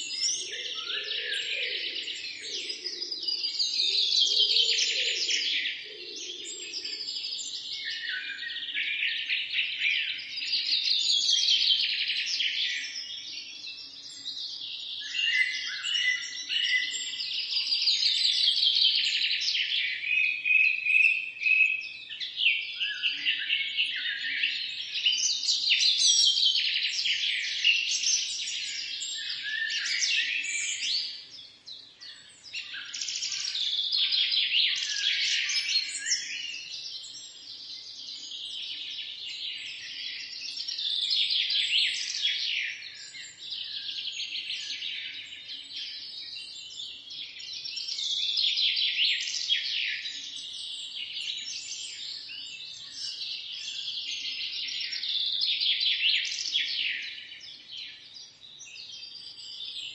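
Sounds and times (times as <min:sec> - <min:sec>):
small birds chirping and singing: 0:00.0 - 0:59.9.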